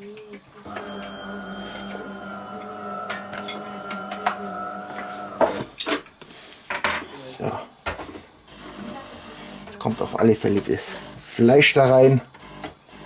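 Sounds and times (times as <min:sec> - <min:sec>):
machine hum: 0:00.7 - 0:05.8
metal mixing bowls clinking: 0:00.7 - 0:06.0.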